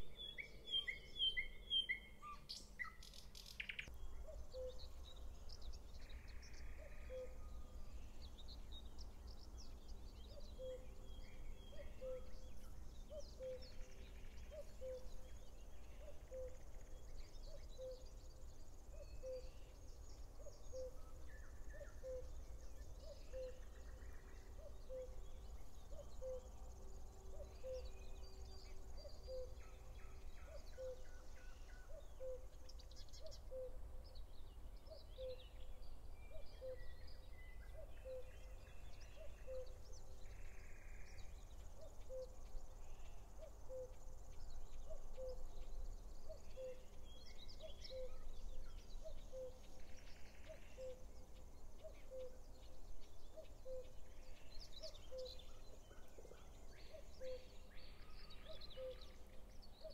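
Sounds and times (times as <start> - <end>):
small birds chirping and singing: 0.0 - 59.9
low hooting bird: 3.6 - 4.9, 6.1 - 7.8, 11.7 - 15.2, 25.9 - 33.8, 37.7 - 44.1, 44.8 - 45.4, 49.0 - 51.2, 51.8 - 52.4, 53.3 - 59.9.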